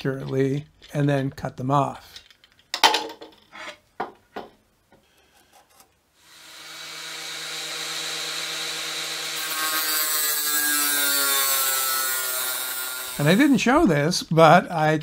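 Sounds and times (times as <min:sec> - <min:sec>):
angle grinder whining: 0:06.2 - 0:13.8
grinder disc cutting steel: 0:06.3 - 0:13.8.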